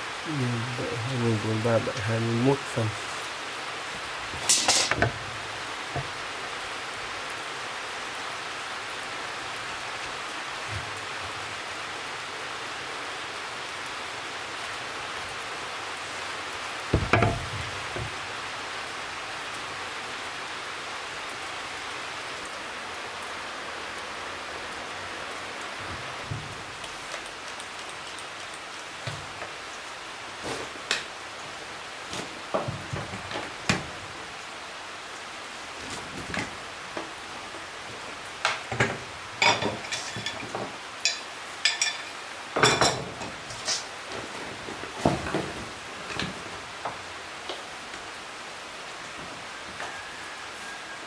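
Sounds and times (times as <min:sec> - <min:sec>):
steady hiss: 0:00.0 - 0:51.0
loud knocks: 0:16.9 - 0:18.2.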